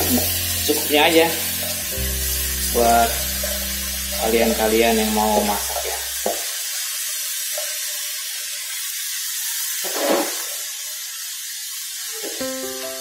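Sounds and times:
background music: 0.0s - 6.2s, 12.4s - 13.0s
food hissing in a wok: 0.0s - 13.0s.

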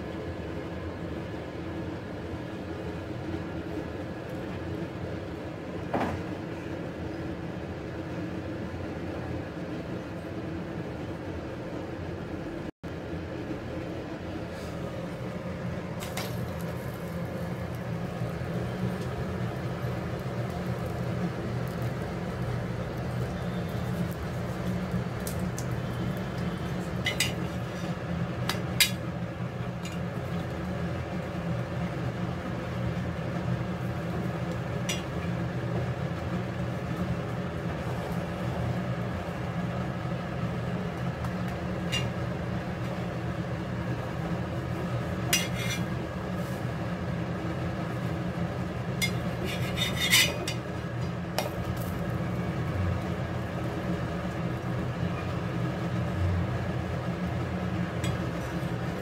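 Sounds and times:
low hum and hiss: 0.0s - 59.0s
metal spatula scraping griddle: 45.2s - 46.6s, 49.0s - 50.6s.

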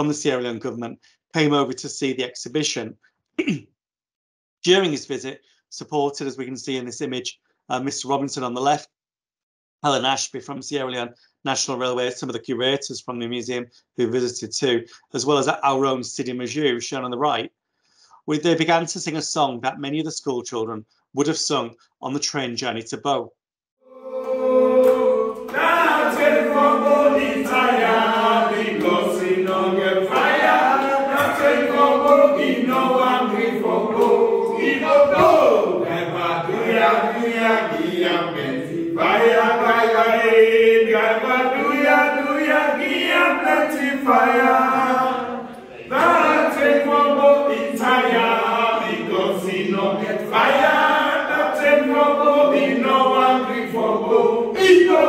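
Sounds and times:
group singing unaccompanied: 23.9s - 55.0s.

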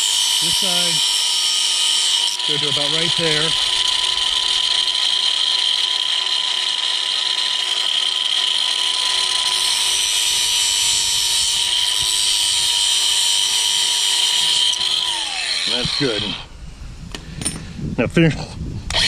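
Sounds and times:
tool cutting plastic pipe: 0.0s - 16.4s
power tool whining: 0.0s - 16.5s.

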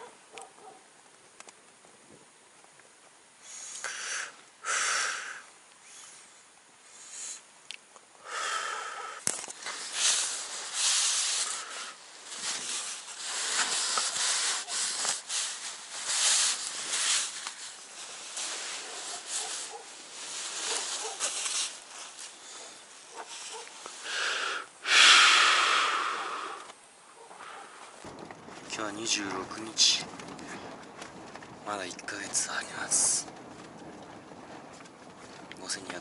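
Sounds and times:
heavy breathing: 3.4s - 5.5s, 8.2s - 15.1s, 23.5s - 26.7s
rustle of fabric: 9.4s - 24.1s.

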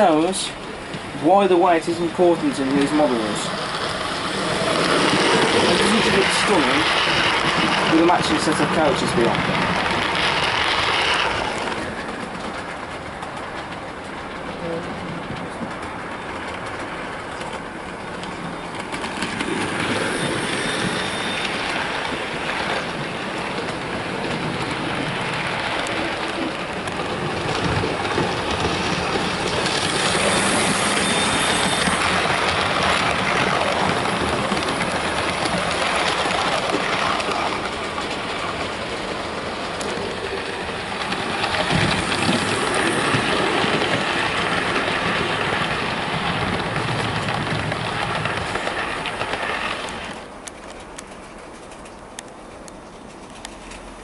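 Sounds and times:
model train motor whirring on rails: 1.9s - 12.8s, 18.2s - 23.1s, 27.6s - 38.3s.

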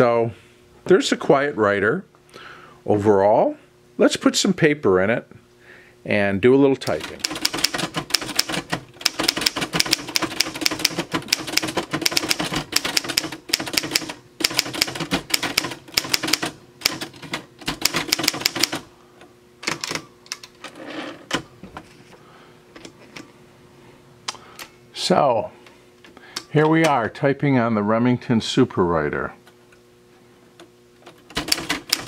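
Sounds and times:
typewriter typing: 6.8s - 18.8s, 19.6s - 20.6s, 31.0s - 32.0s.

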